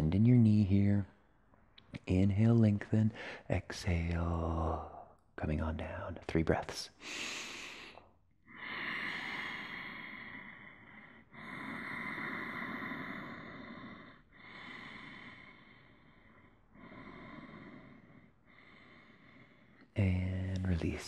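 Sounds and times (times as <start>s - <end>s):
person breathing slowly: 3.1s - 3.5s, 7.0s - 20.0s.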